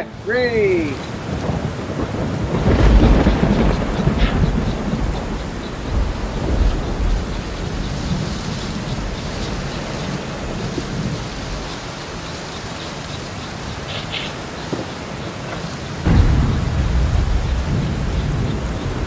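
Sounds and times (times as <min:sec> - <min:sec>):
falling rain hiss: 0:00.0 - 0:19.0
deep low rumble: 0:16.1 - 0:19.0.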